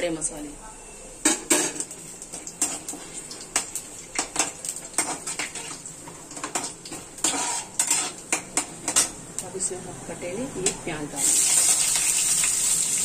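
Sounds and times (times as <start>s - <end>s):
metal ladle scraping a steel pan: 7.2s - 8.2s.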